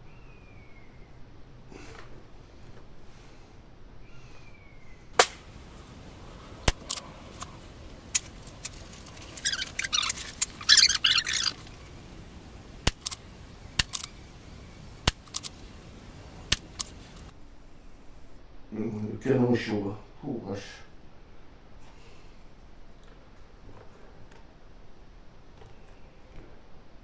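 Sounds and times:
bird chirping: 0.0 - 1.4, 4.0 - 18.0
rifle shots cracking: 5.2 - 5.8, 6.6 - 7.1, 12.8 - 13.2, 15.0 - 15.6
rifle clicks: 6.6 - 7.5, 12.8 - 13.2, 13.8 - 14.2, 15.0 - 15.7, 16.5 - 17.3.

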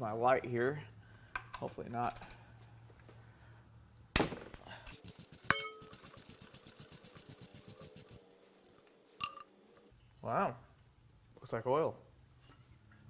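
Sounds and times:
ratchet clicking rapidly: 5.0 - 8.2
ringing metal clink: 5.5 - 6.0.

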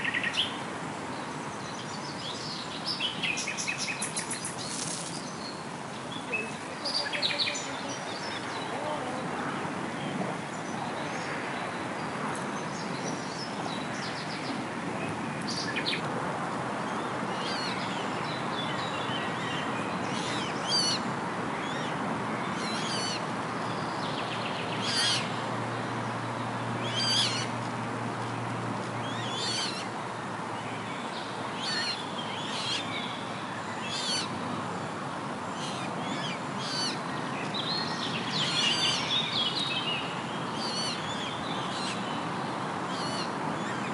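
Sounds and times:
small birds warbling: 33.8 - 34.3.

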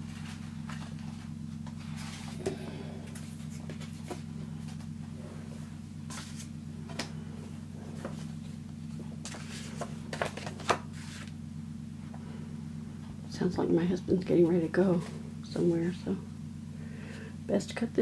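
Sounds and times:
steady low hum: 0.0 - 18.0
paper rustling: 8.0 - 11.3.

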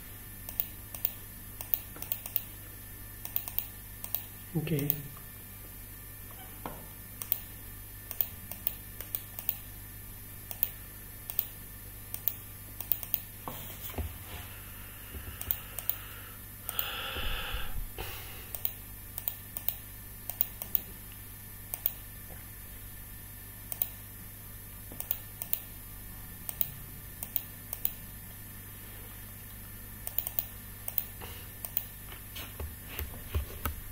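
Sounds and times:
low steady hum: 0.0 - 33.9
mouse and keyboard clicking: 0.5 - 2.5.

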